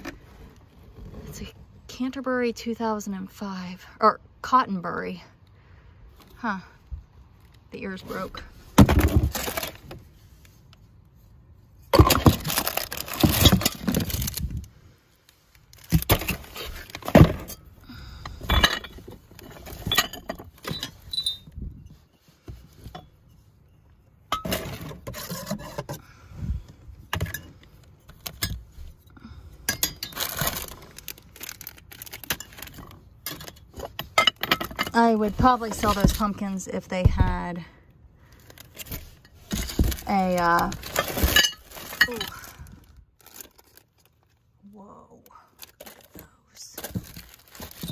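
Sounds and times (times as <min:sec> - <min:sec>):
items clinking in cardboard box: 0:08.8 - 0:10.0, 0:11.9 - 0:14.5, 0:15.8 - 0:17.7, 0:24.3 - 0:26.0, 0:29.7 - 0:35.0, 0:38.4 - 0:42.6, 0:46.8 - 0:47.9.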